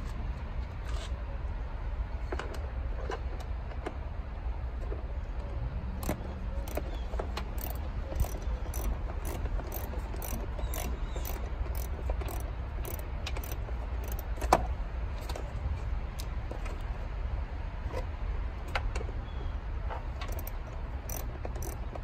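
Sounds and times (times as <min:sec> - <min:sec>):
socket ratchet clicking: 0:06.0 - 0:14.6, 0:20.2 - 0:22.0.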